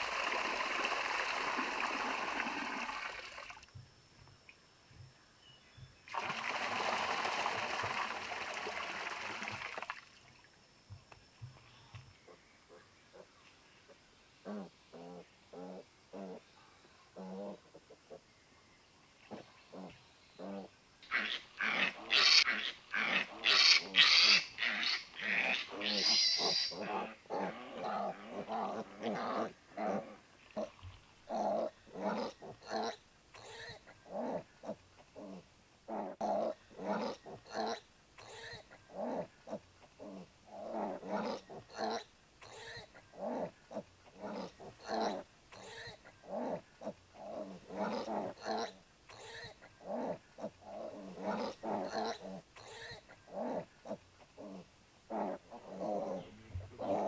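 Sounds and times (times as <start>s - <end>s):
piglets squealing: 21.2s - 26.8s
piglets grunting: 31.3s - 57.0s.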